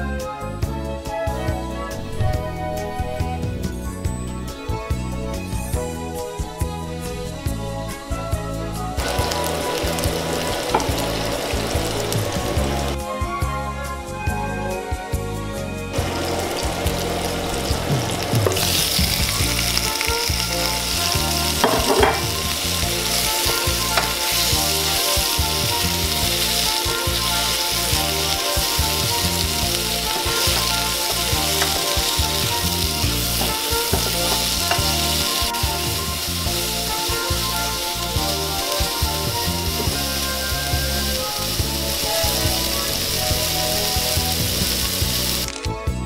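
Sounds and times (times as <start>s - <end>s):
vegetables sizzling in oil: 9.0s - 13.0s, 16.0s - 45.5s
spatula stirring in pan: 20.0s - 38.8s.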